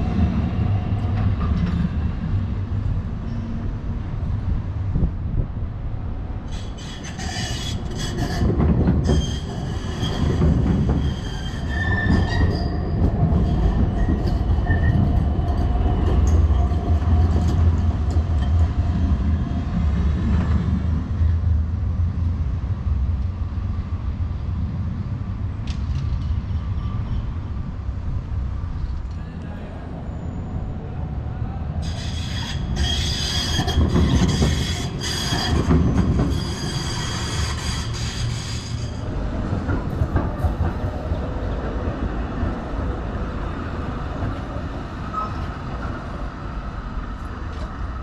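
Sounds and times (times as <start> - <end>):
tram clicks: 0.0 - 3.6, 6.5 - 24.0, 25.2 - 29.6, 31.8 - 48.0
tram rumbling: 0.0 - 48.0
wheel squeal: 6.5 - 15.1, 31.8 - 39.0.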